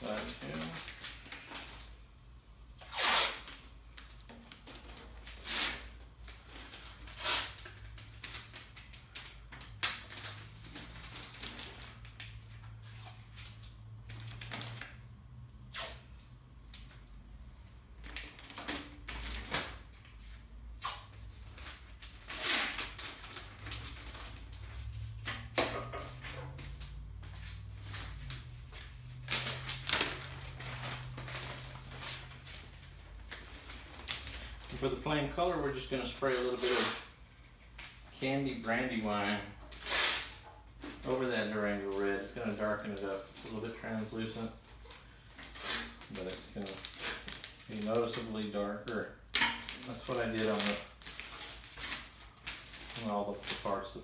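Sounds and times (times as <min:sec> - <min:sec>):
paper crinkling: 0:00.0 - 0:02.0, 0:03.5 - 0:15.0, 0:21.2 - 0:25.1, 0:26.1 - 0:35.2, 0:44.7 - 0:49.0, 0:49.6 - 0:54.0
tape ripping off roll: 0:02.8 - 0:06.0, 0:06.7 - 0:13.6, 0:15.6 - 0:17.0, 0:20.8 - 0:34.8, 0:36.4 - 0:37.1, 0:39.7 - 0:40.5, 0:45.4 - 0:48.0.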